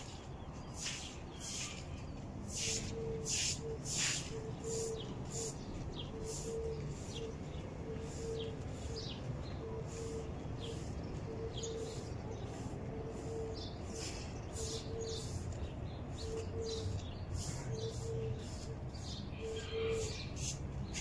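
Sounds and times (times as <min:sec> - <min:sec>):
push broom sweeping concrete: 0:00.6 - 0:05.6.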